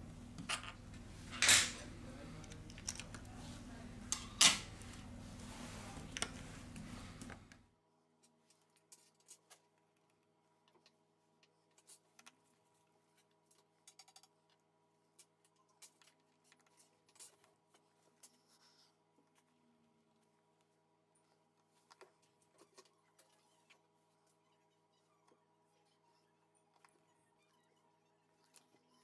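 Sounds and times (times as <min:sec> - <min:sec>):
low steady hum: 0:00.0 - 0:08.6
plastic phone parts clicking: 0:02.4 - 0:03.2.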